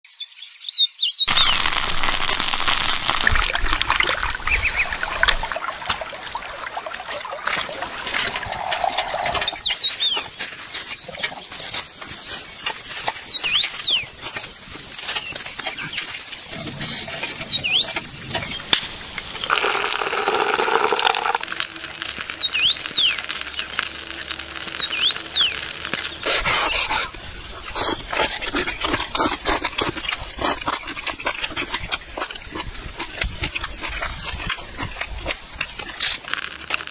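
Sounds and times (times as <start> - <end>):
bird chirping: 0.0 - 1.7, 15.2 - 18.7
stream water rushing: 1.3 - 9.7, 19.5 - 21.8
cooking and eating clatter: 7.2 - 36.9.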